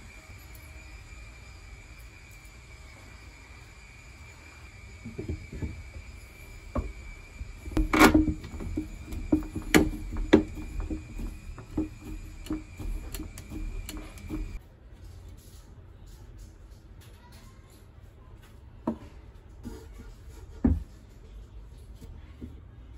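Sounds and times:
faint high whine: 0.0s - 14.6s
wood pieces knocking together: 7.6s - 14.6s.

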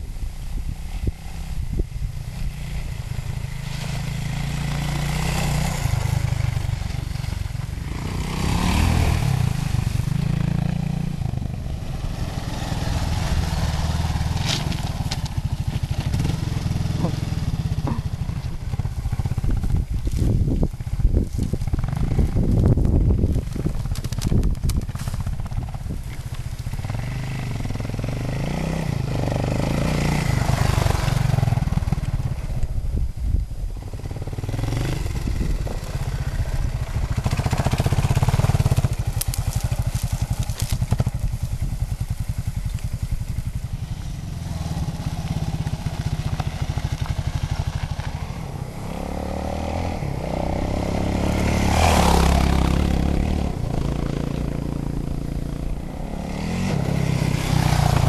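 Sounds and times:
motorcycle engine revving: 0.7s - 58.0s.

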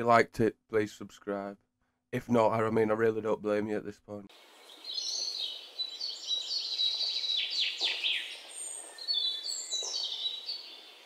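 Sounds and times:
songbirds singing: 4.3s - 11.0s.

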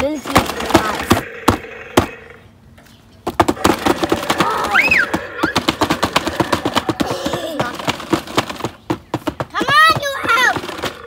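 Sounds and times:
toys clattering and knocking: 0.0s - 11.0s.

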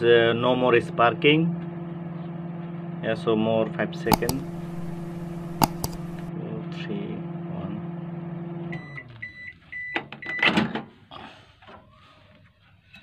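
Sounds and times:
microwave oven humming: 0.0s - 9.2s
microwave beeps: 8.7s - 10.5s.

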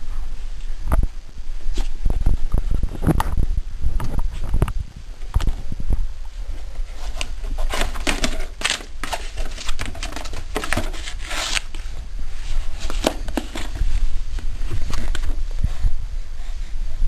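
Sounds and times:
paper booklet crinkling: 6.9s - 15.4s.

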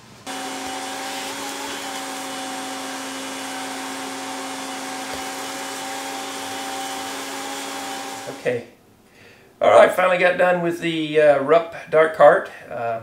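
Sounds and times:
vacuum cleaner running: 0.0s - 8.7s.

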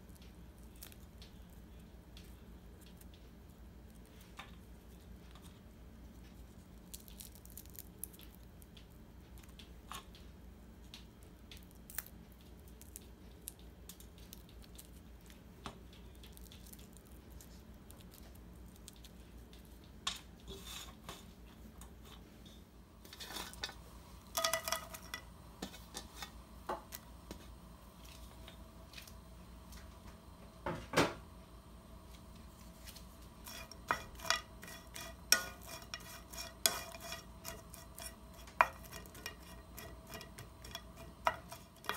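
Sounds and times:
dried fish crackling: 0.0s - 20.7s.

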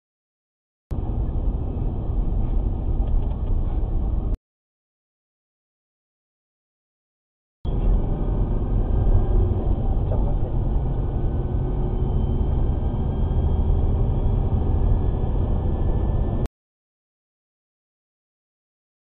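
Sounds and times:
car road and engine rumble: 0.9s - 4.4s, 7.7s - 16.5s.

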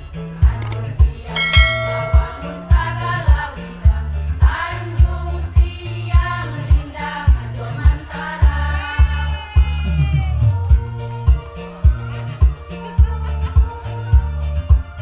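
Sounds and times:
women's choir singing: 0.4s - 10.4s
steady low beat: 1.4s - 8.6s.

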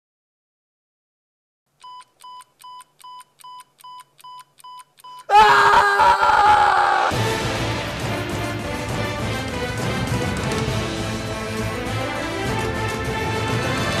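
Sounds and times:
short electronic beeps: 1.8s - 5.3s
man screaming: 5.3s - 7.2s.

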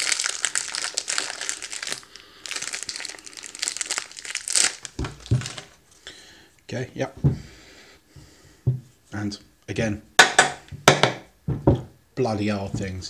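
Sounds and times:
foil packet crinkling: 0.0s - 6.0s.

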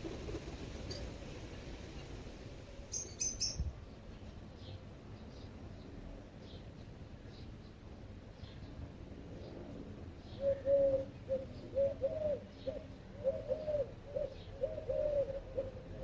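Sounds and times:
small birds chirping: 0.0s - 15.8s
dove cooing: 10.3s - 16.0s.

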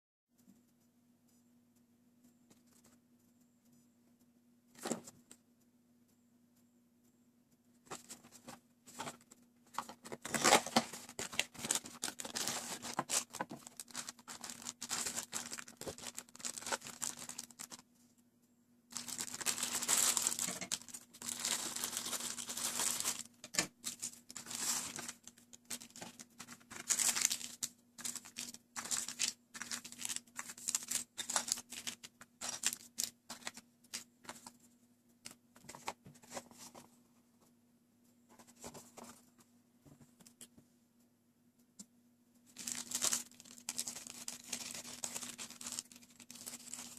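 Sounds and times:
faint steady hum: 0.3s - 46.9s
plastic tray crackling: 7.9s - 17.8s, 18.9s - 34.5s, 42.6s - 46.9s
plastic wrappers crinkling: 8.9s - 17.8s, 18.9s - 34.6s, 42.5s - 46.9s
scissors cutting plastic bag: 10.1s - 17.8s, 19.0s - 33.6s, 42.6s - 46.9s.

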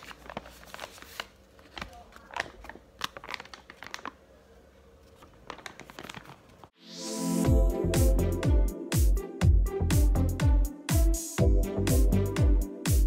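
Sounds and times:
paper wrapping crinkling: 0.0s - 4.3s, 4.9s - 6.7s.

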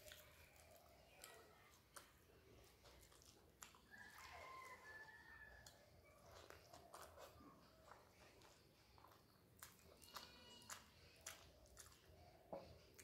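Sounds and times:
chewing with lip smacks: 0.0s - 13.0s
fingers squishing rice on plate: 0.0s - 13.0s
faint high-pitched cry: 9.9s - 11.4s.

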